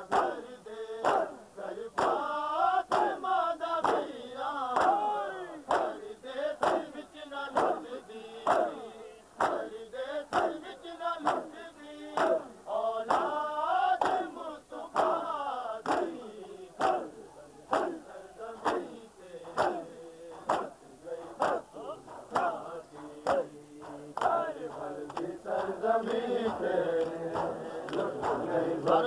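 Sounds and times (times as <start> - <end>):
hands slapping bare chests: 0.0 - 3.2, 3.8 - 5.1, 5.7 - 6.0, 6.6 - 6.9, 7.5 - 8.8, 9.4 - 10.6, 11.2 - 11.6, 12.2 - 12.5, 13.1 - 13.4, 14.0 - 18.0, 18.6 - 20.8, 21.4 - 29.0
men chanting in chorus: 0.0 - 29.0.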